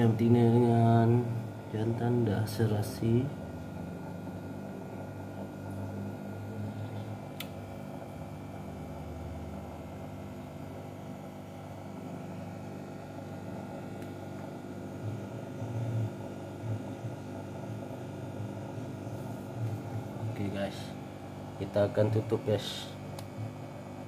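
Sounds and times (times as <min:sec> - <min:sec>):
low background hum: 0:00.0 - 0:24.0
sharp click: 0:07.4 - 0:07.6.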